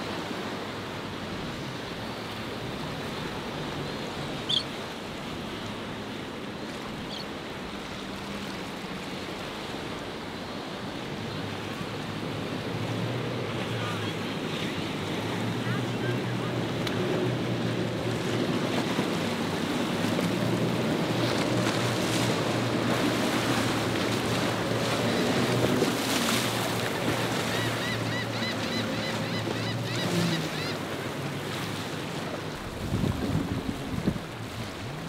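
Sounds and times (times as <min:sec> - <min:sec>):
boat engine drone: 0:00.0 - 0:35.0
hulls splashing through waves: 0:00.0 - 0:35.0
wind buffeting microphone: 0:32.6 - 0:35.0.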